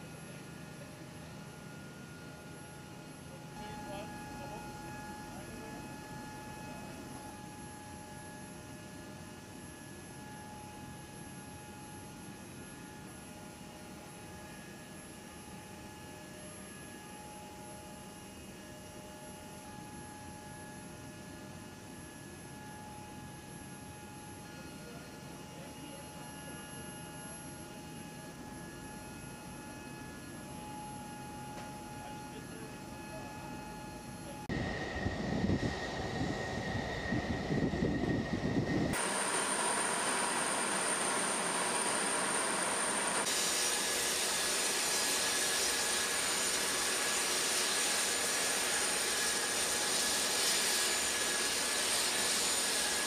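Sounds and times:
high-pitched whining tones: 0:30.4 - 0:45.6
aircraft low rumbling hum: 0:32.7 - 0:43.3.

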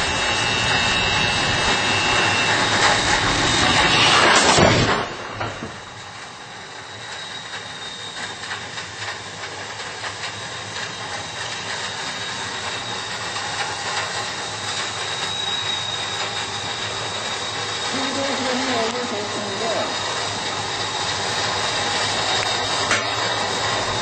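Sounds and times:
steady hiss: 0:05.6 - 0:24.0
thin high whistle: 0:05.7 - 0:08.9, 0:10.6 - 0:20.1, 0:20.8 - 0:24.0.

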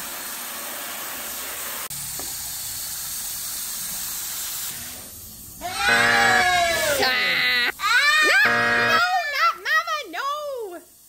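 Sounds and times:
hose spraying water into plastic bin: 0:00.0 - 0:07.2.

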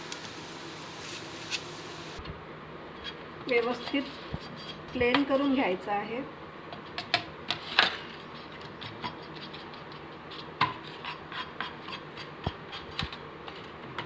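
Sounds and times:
spoon scraping thick mixture: 0:03.0 - 0:05.6, 0:08.5 - 0:13.8.

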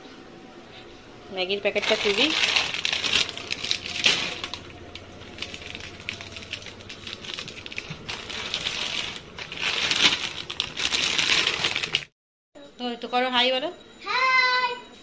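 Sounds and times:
plastic packet crinkling: 0:01.7 - 0:12.1.

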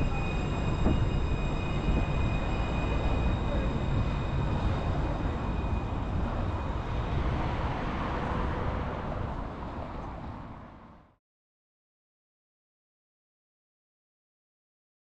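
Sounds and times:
faint high whine: 0:00.0 - 0:07.2
tram rumble and hum: 0:00.0 - 0:11.2.

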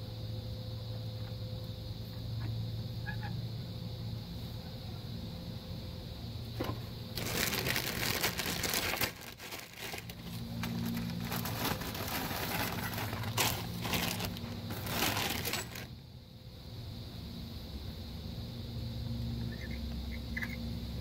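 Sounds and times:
paper towel crumpling and rubbing: 0:07.2 - 0:15.9.

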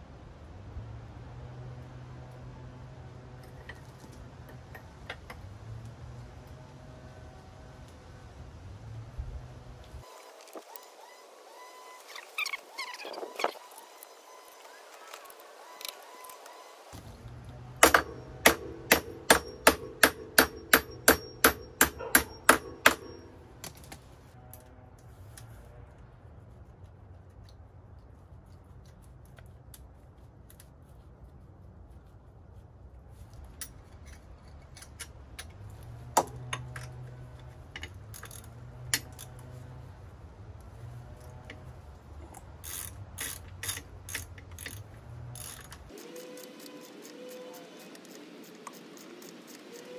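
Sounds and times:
hammer striking metal: 0:17.8 - 0:23.4
metal parts knocking and clicking: 0:17.8 - 0:24.0, 0:36.2 - 0:39.4, 0:42.6 - 0:47.5.

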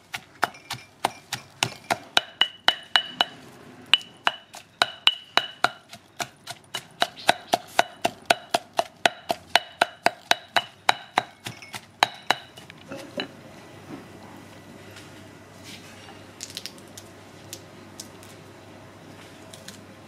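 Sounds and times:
stone pestle pounding in mortar: 0:00.1 - 0:03.4, 0:04.0 - 0:13.3.

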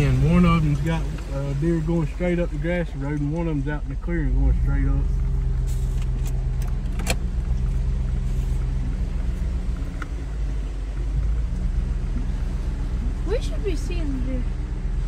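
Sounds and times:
vehicle engine and tyres on dirt: 0:00.0 - 0:15.0.

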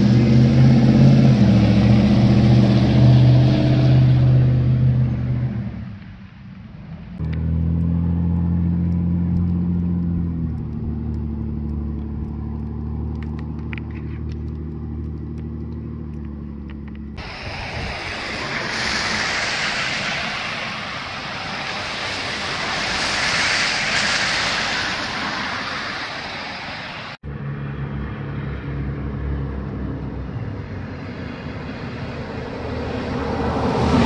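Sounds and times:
tyres hissing on wet street: 0:16.8 - 0:27.2, 0:29.7 - 0:34.0.

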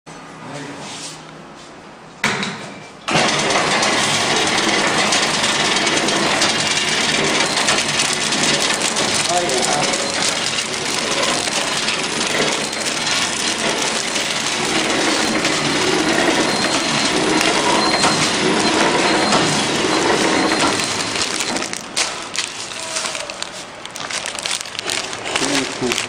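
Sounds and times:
packaging machine clatter: 0:03.1 - 0:26.0
scattered clicks: 0:06.4 - 0:26.0.

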